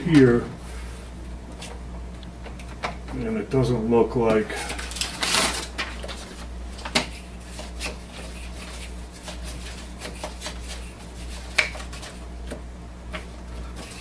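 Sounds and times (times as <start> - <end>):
low steady hum: 0.0 - 14.0
paper sheets rustling: 4.5 - 12.2.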